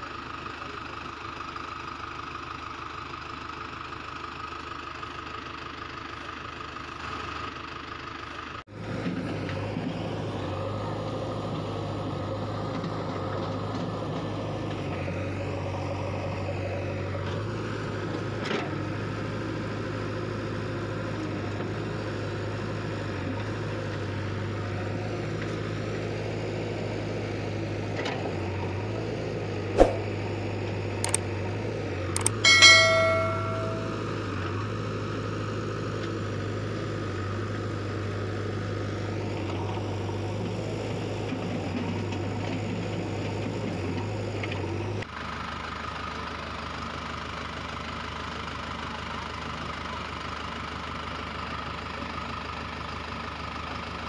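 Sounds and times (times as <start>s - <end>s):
tractor engine idling: 0.0s - 8.6s
sharp knock: 29.8s - 30.1s.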